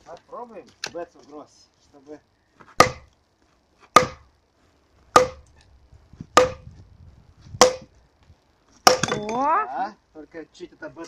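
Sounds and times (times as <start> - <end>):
sledgehammer striking axe head: 2.8 - 3.1, 3.9 - 4.3, 5.1 - 5.5, 6.4 - 6.6, 7.6 - 7.9, 8.8 - 9.4.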